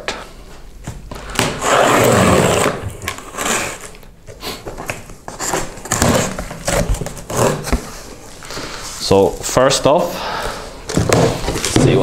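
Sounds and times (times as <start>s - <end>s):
knife cutting packing tape: 1.4s - 4.0s.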